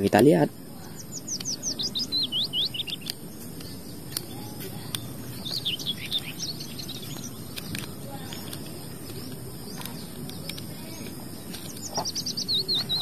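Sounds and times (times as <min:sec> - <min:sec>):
small bird chirping: 0:00.0 - 0:13.0
light clicks: 0:06.9 - 0:13.0.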